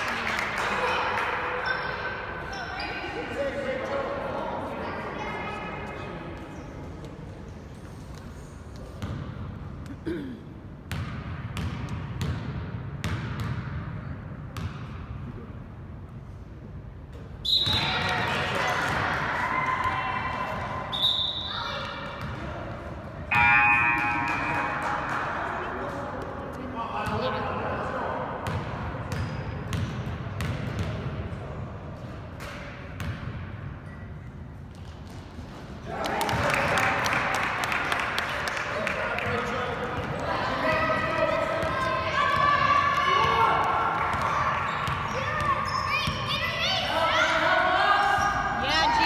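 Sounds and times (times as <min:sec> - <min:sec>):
low murmur of gym: 0:00.0 - 0:10.9
basketball bouncing on gym floor: 0:09.0 - 0:09.5, 0:10.8 - 0:15.0, 0:28.4 - 0:31.2, 0:32.4 - 0:33.5.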